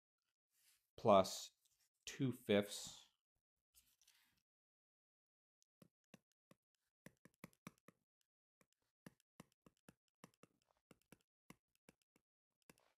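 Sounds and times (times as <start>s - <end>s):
stylus tapping on tablet screen: 5.8s - 8.0s, 8.6s - 13.0s.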